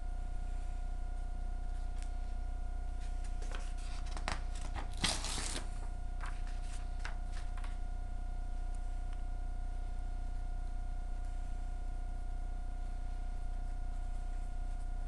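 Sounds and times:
paper rustling: 0:03.0 - 0:07.8
paper tearing: 0:03.5 - 0:05.8.

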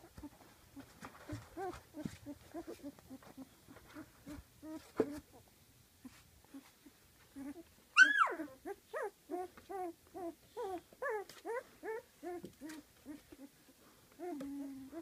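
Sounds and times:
puppies whining and whimpering: 0:00.1 - 0:05.4, 0:06.5 - 0:15.0
puppy yelp: 0:07.4 - 0:13.5.

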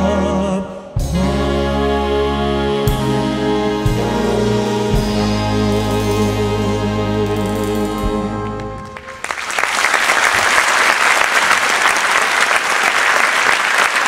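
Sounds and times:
audience applause: 0:08.8 - 0:14.0.

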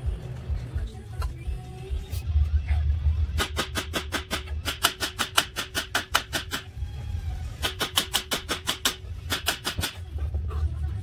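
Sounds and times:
hammer striking steel: 0:03.3 - 0:06.7, 0:07.6 - 0:10.1.

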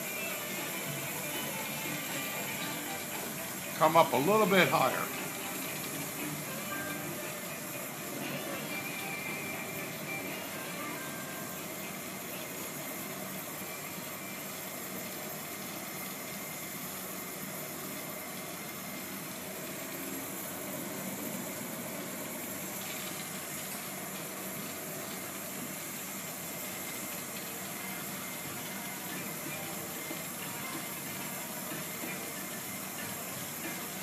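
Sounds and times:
torch flame hissing: 0:00.0 - 0:34.0.

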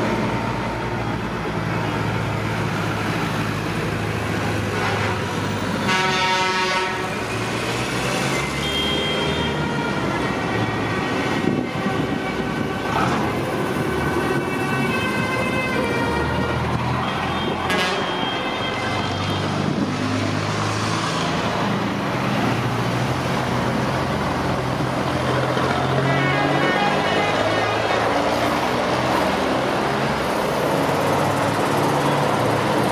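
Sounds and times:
diesel trucks driving past: 0:00.0 - 0:32.9
truck horns: 0:04.5 - 0:13.4, 0:14.0 - 0:19.9, 0:25.3 - 0:29.6.

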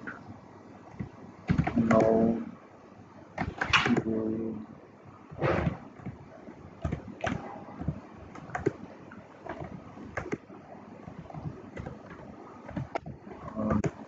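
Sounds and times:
keyboard typing clicks: 0:00.9 - 0:02.3, 0:06.8 - 0:10.5, 0:11.1 - 0:14.0.

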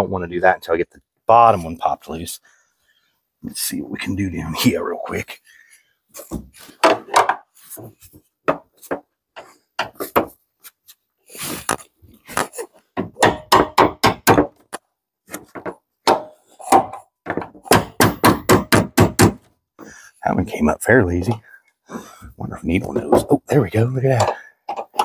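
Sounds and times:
hammer tapping on metal: 0:13.0 - 0:14.5.

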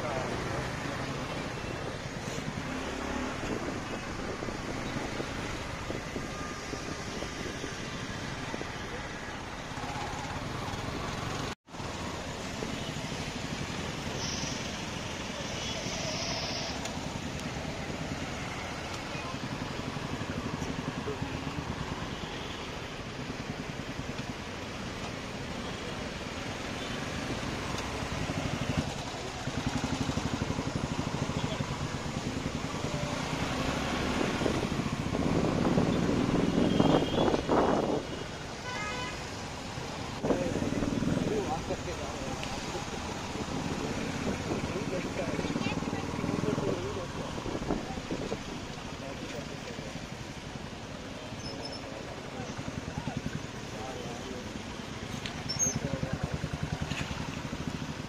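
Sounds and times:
traffic idling and creeping: 0:00.0 - 0:58.0
voices in background: 0:39.8 - 0:57.3.

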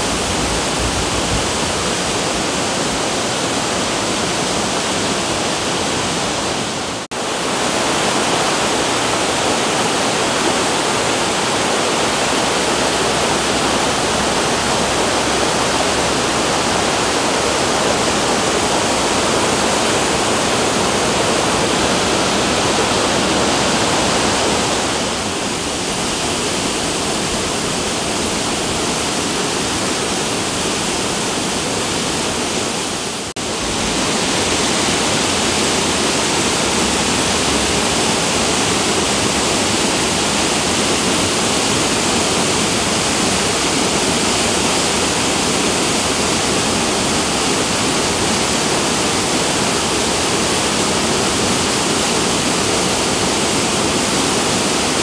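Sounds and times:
river rushing over rapids: 0:00.0 - 0:55.0.

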